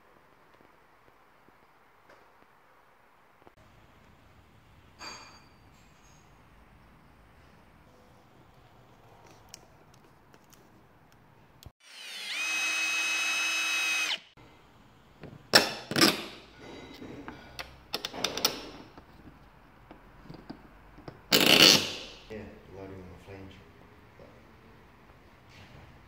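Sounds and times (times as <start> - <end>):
cordless drill whining: 11.8 - 14.3.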